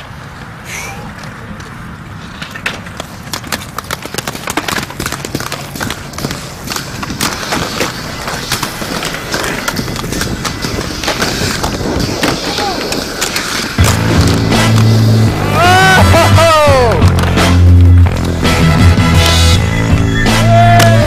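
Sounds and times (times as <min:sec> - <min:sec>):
skate wheels rolling on concrete: 0:00.0 - 0:21.0
sharp clicks and clacks: 0:02.4 - 0:14.9.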